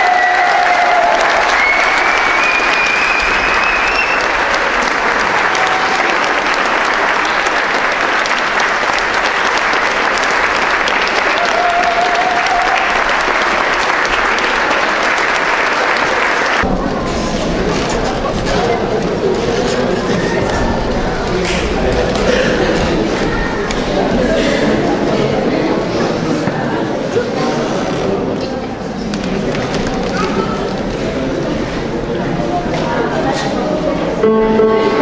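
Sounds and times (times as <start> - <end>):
audience applauding: 0.0 - 16.7.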